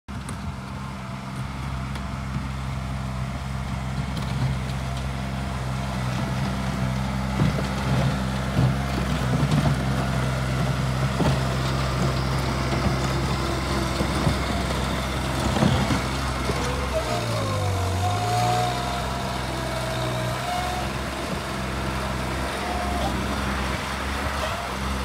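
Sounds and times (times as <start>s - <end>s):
diesel engine running: 0.1s - 25.0s.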